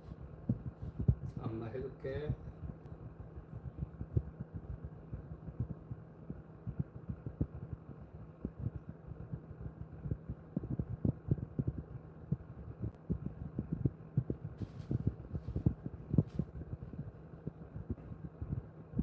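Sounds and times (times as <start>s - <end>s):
hands rubbing dog's fur: 14.6s - 16.6s.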